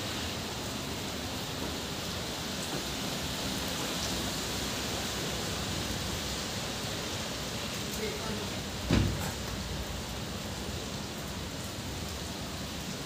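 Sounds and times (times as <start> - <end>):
steady rain on wet paving: 0.0 - 13.0.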